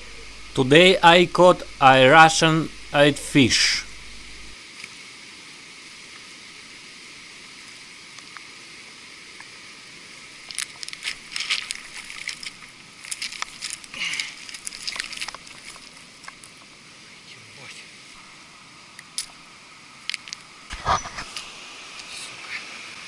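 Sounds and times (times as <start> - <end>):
stream water hiss: 0.0 - 23.0
net splashing and dripping: 11.0 - 16.4.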